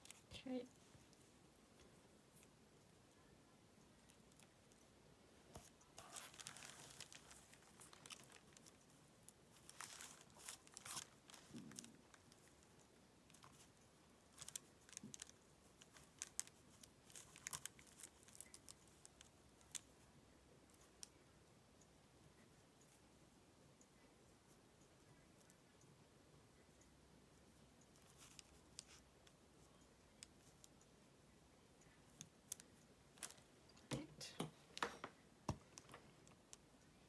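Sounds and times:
fabric and paper rustling: 0:05.6 - 0:08.8, 0:09.5 - 0:12.4.

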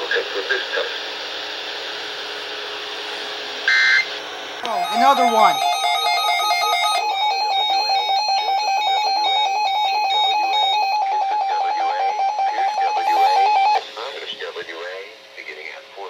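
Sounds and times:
warbling alarm tone: 0:04.6 - 0:13.8.

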